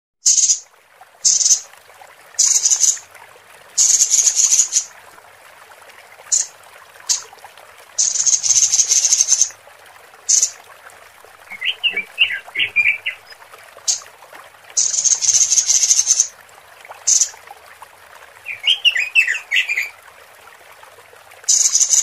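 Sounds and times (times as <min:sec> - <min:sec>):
bird harsh hissing chatters: 0:02.4 - 0:03.0, 0:03.8 - 0:04.9, 0:14.8 - 0:16.3, 0:21.5 - 0:22.0.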